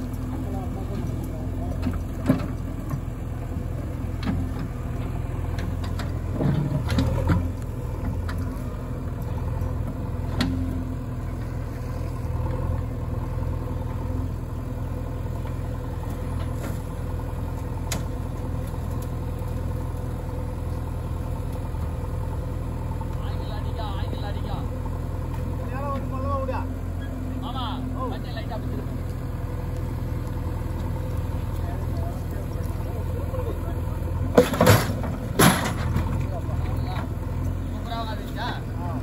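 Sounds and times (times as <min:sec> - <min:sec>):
diesel engine running: 0:00.0 - 0:39.0
sharp knocks and clatters: 0:34.3 - 0:36.3.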